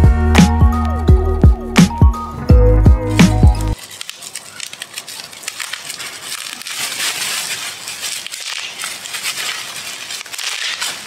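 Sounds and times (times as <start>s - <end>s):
bubble wrap crinkling: 3.1s - 11.0s.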